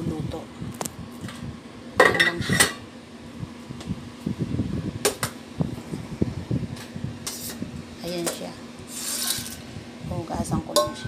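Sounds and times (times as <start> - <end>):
steel bowls clanking on counter: 10.7 - 11.0.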